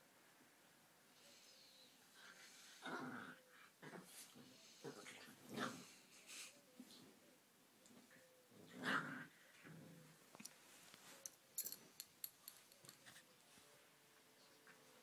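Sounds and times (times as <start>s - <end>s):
puppy play growl: 2.2s - 6.2s, 7.9s - 10.2s.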